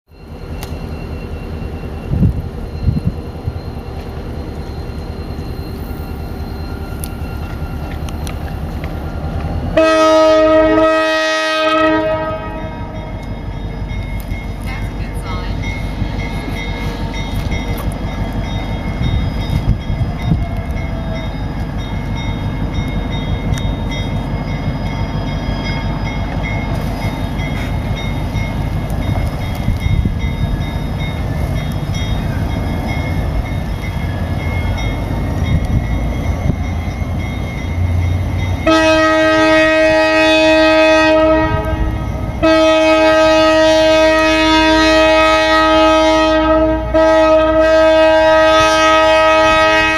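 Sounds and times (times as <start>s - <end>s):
diesel locomotive rumble: 0.1s - 49.9s
train air horn blasts: 9.7s - 13.0s, 38.6s - 49.9s.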